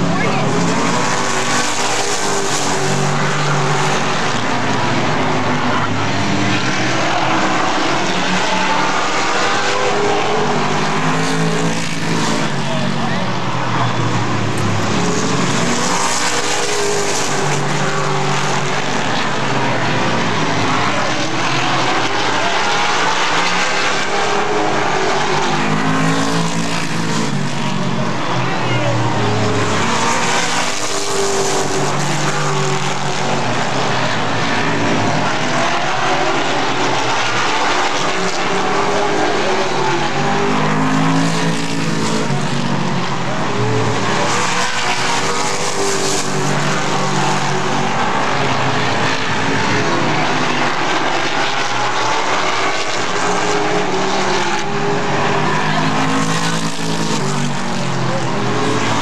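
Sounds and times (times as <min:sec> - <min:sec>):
race car engines passing: 0:00.0 - 0:59.0.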